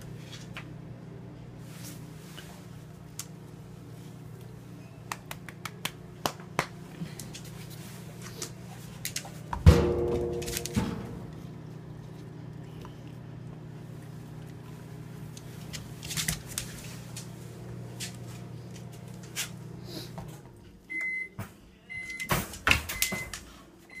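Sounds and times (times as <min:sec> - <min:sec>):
microwave oven humming: 0:00.0 - 0:24.0
microwave high beeps: 0:20.9 - 0:24.0.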